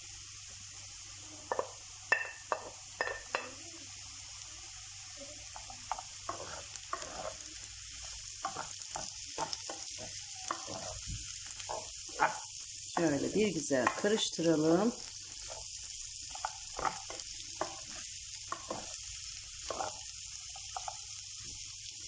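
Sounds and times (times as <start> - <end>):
food sizzling in a frying pan: 0.0 - 22.0
wooden spoon scraping a pan: 5.4 - 21.1.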